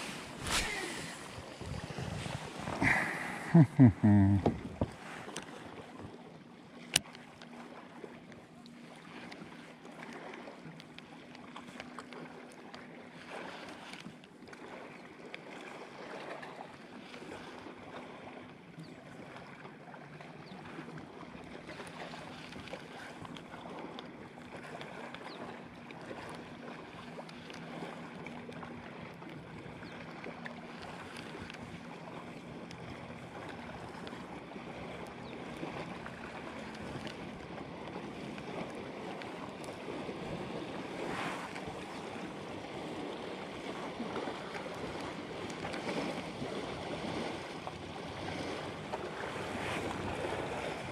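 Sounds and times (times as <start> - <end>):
wind on microphone: 0.0 - 5.0
water lapping against kayak hull: 0.0 - 50.9.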